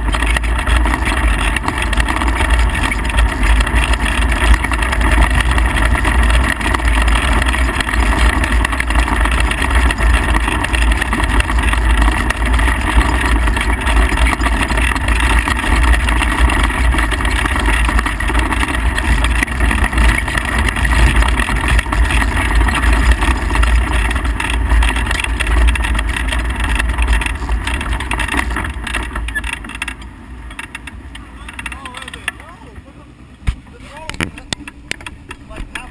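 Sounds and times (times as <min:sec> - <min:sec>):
race car engine running hard: 0:00.0 - 0:35.9.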